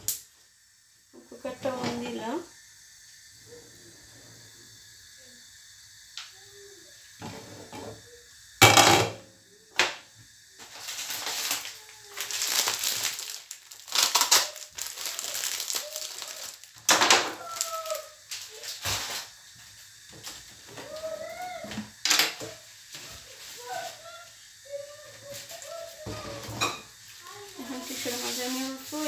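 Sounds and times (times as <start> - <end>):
crinkling rustling handling noise: 10.6 - 19.2.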